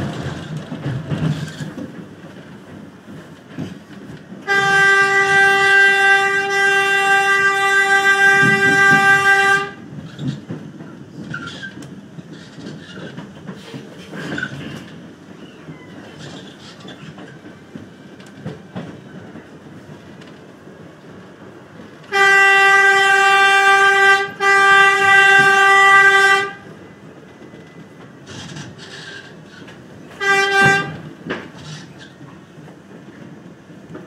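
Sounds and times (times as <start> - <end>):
train running on rails: 0.0 - 34.0
subway train horn blasts: 4.4 - 9.9, 22.0 - 26.8, 30.1 - 31.3.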